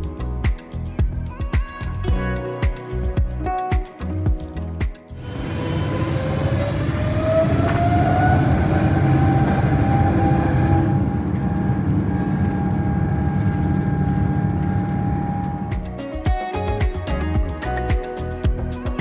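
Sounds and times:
jet engines rumbling at takeoff: 5.2s - 16.0s
jet engine whine: 5.2s - 16.1s.

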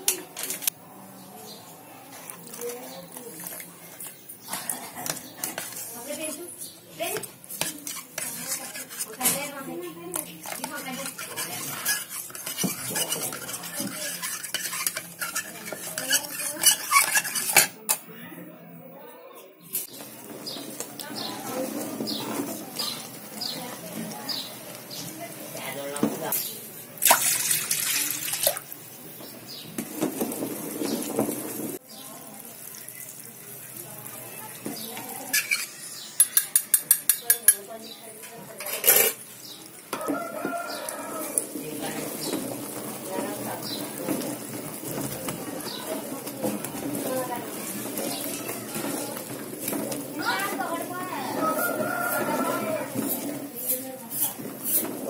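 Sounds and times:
metal spoon stirring in steel tumbler: 2.1s - 18.0s, 34.8s - 55.0s
scrape in pot: 2.1s - 18.0s, 35.2s - 37.3s, 38.6s - 55.0s
stick tapping metal pot: 36.2s - 37.7s.

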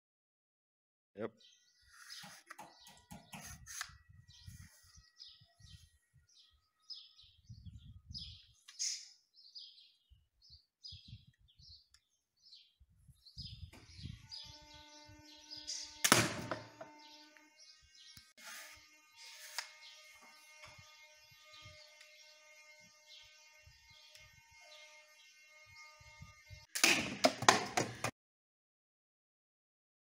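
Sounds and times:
small birds chirping: 1.2s - 16.0s, 16.7s - 18.4s, 19.2s - 26.6s
toy pistol sharp snap: 26.8s - 27.2s.

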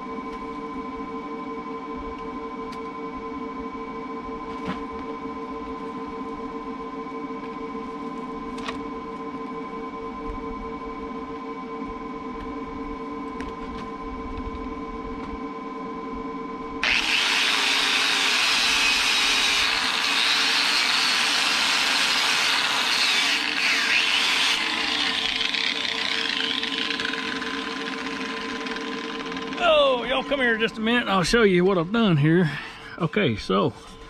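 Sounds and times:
steady hum: 0.0s - 34.0s
angle grinder grinding steel: 16.8s - 29.6s.

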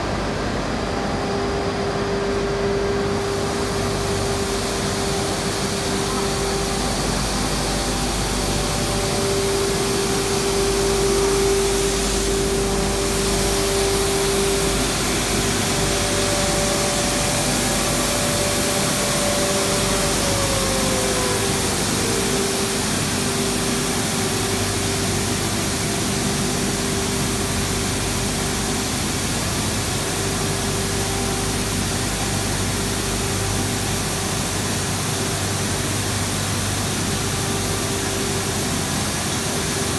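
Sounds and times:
machine motors humming and hissing: 0.0s - 39.9s.

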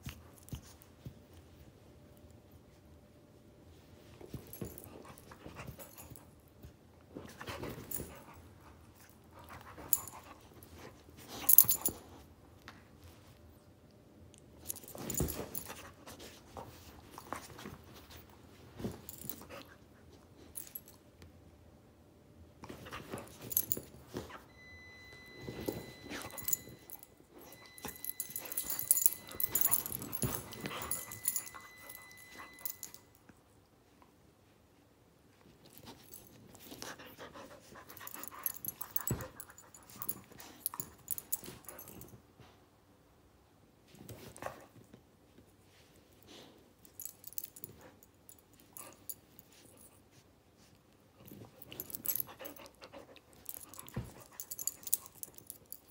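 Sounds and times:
thin high tone: 24.5s - 33.2s.

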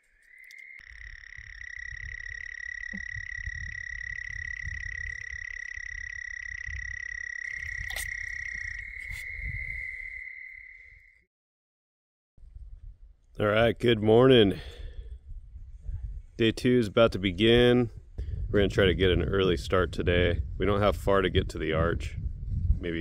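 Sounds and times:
frog trilling: 0.1s - 11.2s.

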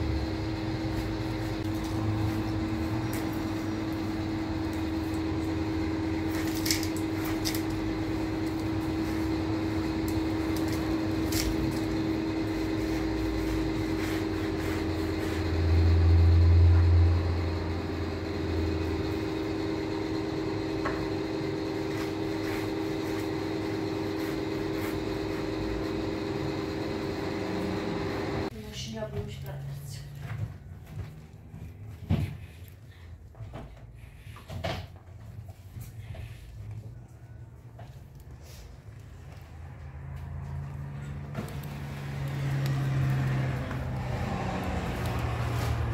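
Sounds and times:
steady machine hum: 0.0s - 28.8s, 38.1s - 45.9s.

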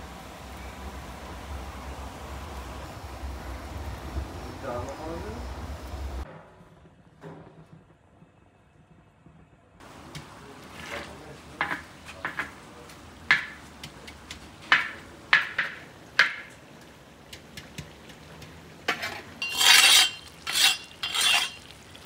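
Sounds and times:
metal skimmer scraping pot: 18.9s - 22.0s.

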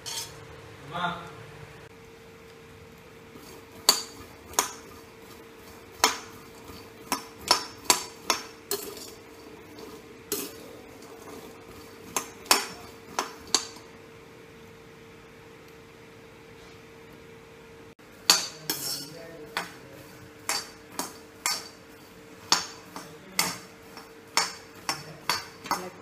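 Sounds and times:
steel spoon scraping a wok: 0.0s - 0.4s, 3.3s - 13.8s, 18.3s - 26.0s.

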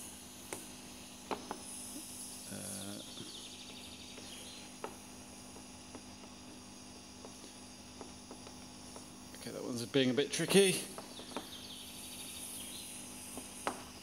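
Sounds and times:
steady low hiss: 0.0s - 14.0s
soldering iron clicks and taps: 0.4s - 2.0s, 4.1s - 6.4s, 7.2s - 9.4s, 13.2s - 14.0s.

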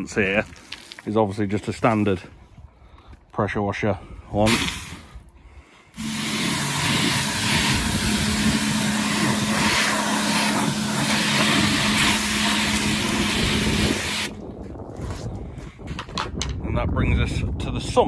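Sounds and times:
pressure washer spraying water: 4.5s - 5.0s, 6.0s - 14.4s
steady hum: 6.0s - 14.4s.

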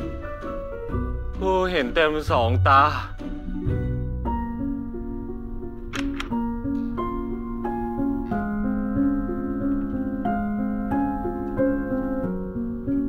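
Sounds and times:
soft keyboard melody: 0.0s - 13.0s.

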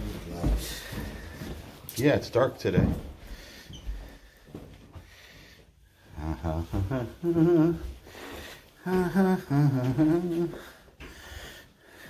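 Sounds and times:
person humming a tune: 6.2s - 8.0s, 8.8s - 10.8s.

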